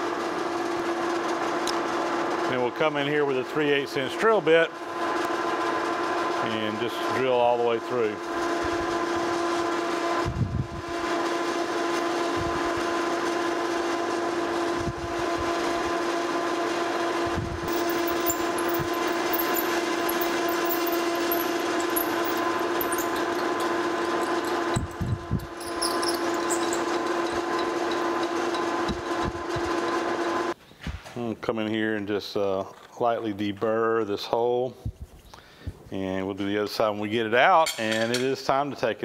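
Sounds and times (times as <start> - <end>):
faint high squeaks: 17.7 - 27.7
drill boring through steel: 17.7 - 28.7
metal lathe humming: 17.7 - 29.2.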